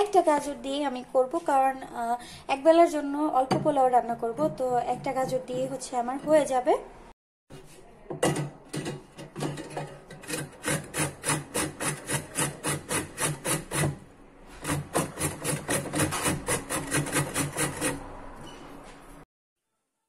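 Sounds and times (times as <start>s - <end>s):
carrot grated on metal grater: 9.4s - 18.1s.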